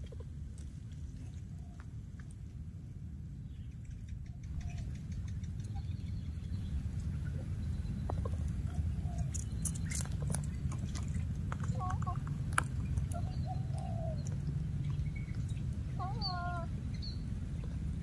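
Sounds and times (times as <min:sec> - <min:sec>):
wind rumble on microphone: 0:00.0 - 0:18.0
dry grass and twigs crackling: 0:08.0 - 0:18.0
twigs snapping: 0:09.3 - 0:13.4.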